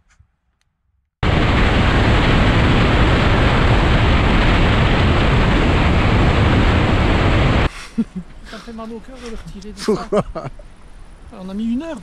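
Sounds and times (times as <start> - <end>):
wind rushing over microphone: 1.2 - 7.7.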